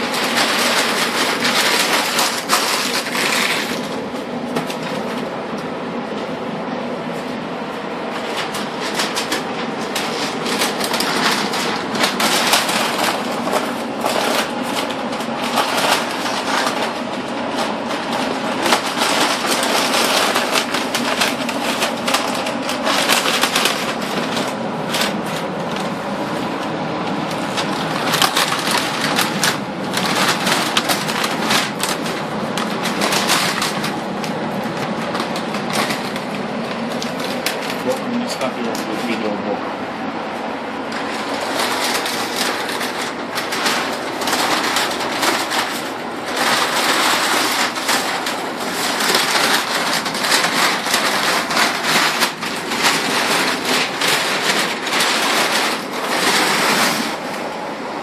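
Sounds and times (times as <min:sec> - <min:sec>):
paper and plastic crinkling and tearing: 0:00.0 - 0:05.6, 0:08.1 - 0:39.4, 0:40.8 - 0:57.5.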